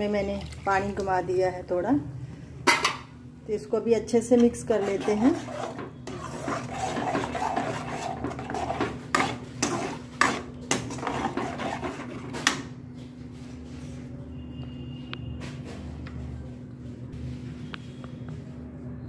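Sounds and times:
spatula scraping gravy in pan: 0:04.5 - 0:12.6.

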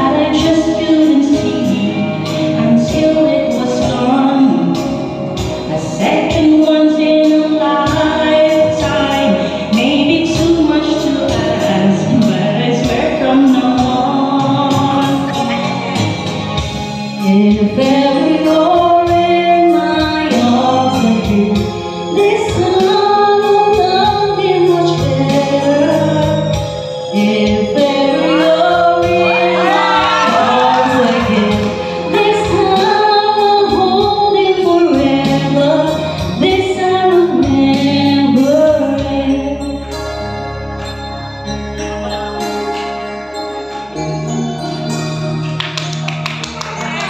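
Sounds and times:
woman singing with vibrato: 0:00.0 - 0:05.0, 0:05.6 - 0:16.0, 0:17.2 - 0:39.9
electronic keyboard sustained notes: 0:00.0 - 0:47.0
singers: 0:17.2 - 0:39.6.

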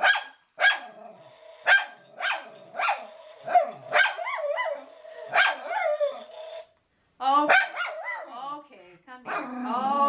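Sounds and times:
dog whining: 0:02.1 - 0:06.6.

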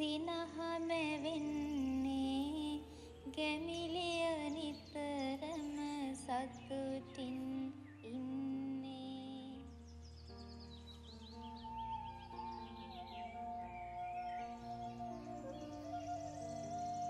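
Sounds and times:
woman singing lullaby-like melody: 0:00.0 - 0:09.9
sustained low accompaniment: 0:08.3 - 0:17.0.

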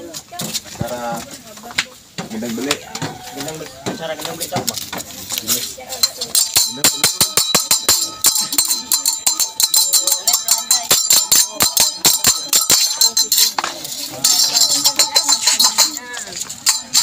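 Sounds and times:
jingling clashing cymbals: 0:06.0 - 0:17.0.

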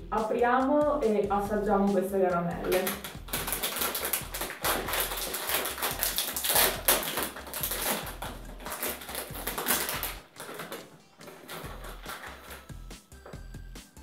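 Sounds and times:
plastic bag crinkling: 0:02.6 - 0:12.9.

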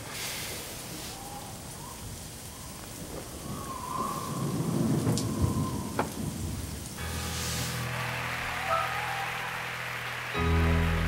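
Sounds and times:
rain falling: 0:00.0 - 0:11.0
thunder rumbling: 0:01.3 - 0:08.6
sharp thunder cracks: 0:03.0 - 0:07.0.

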